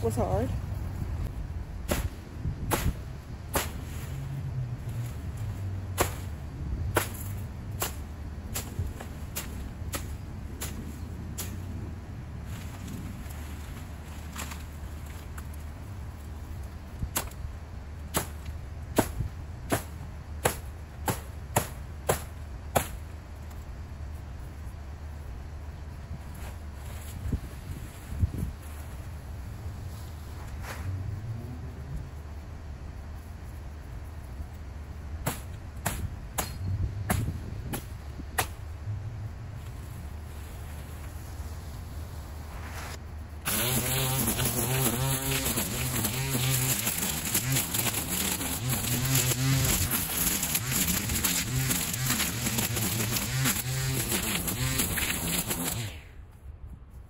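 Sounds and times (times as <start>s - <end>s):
machete chopping stalks: 1.8s - 4.1s, 5.9s - 11.7s, 17.1s - 17.4s, 18.1s - 23.1s, 35.2s - 38.7s, 43.5s - 56.0s.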